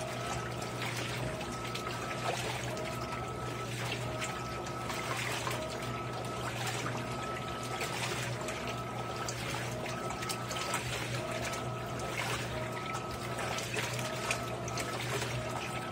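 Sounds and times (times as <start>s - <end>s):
machine whine: 0.0s - 15.9s
washing machine motor hum: 0.0s - 15.9s
water sloshing and splashing: 0.0s - 15.9s.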